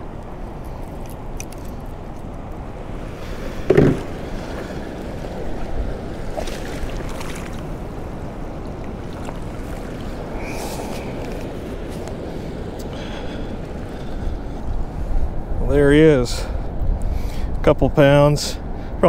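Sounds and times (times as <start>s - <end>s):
river current rushing around legs: 0.0s - 15.1s
brief thump: 3.7s - 4.1s.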